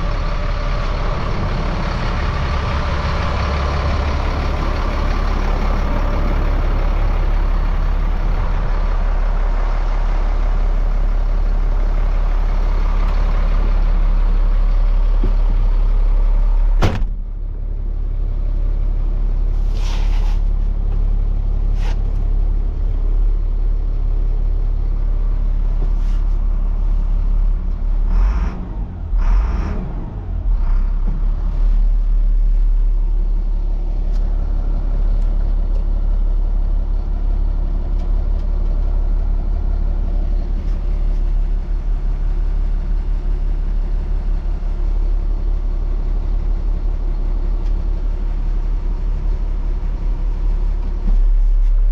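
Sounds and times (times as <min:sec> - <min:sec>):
truck engine idling: 0:00.0 - 0:51.9
cab door slamming: 0:16.8 - 0:17.2.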